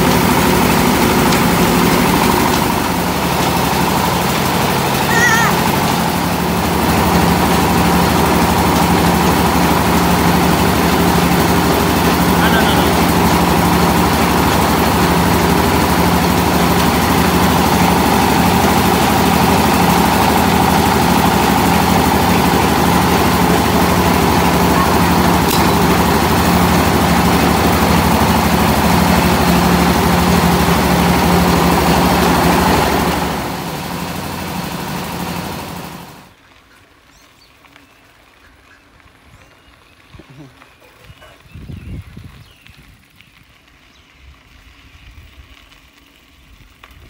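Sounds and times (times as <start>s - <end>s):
rice mill engine running: 0.0s - 36.4s.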